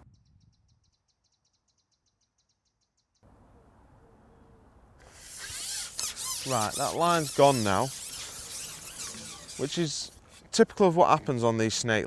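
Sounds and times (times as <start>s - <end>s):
faint outdoor background noise: 1.2s - 12.0s
rapid high chirping: 5.2s - 10.2s.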